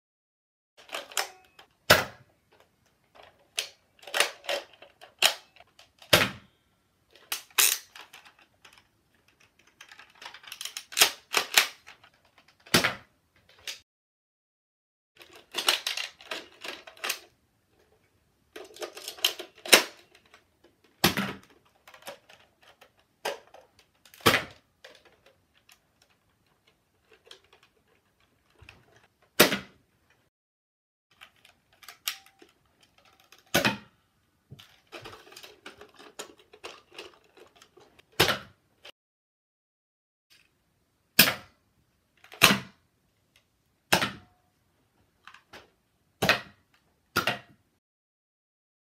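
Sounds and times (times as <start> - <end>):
sharp plastic snaps: 7.3 - 13.8.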